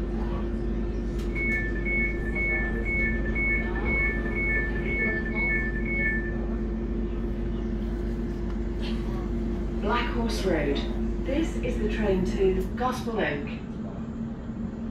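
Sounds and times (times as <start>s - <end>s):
train electrical hum: 0.0s - 14.9s
two-tone door warning beeps: 1.2s - 6.5s.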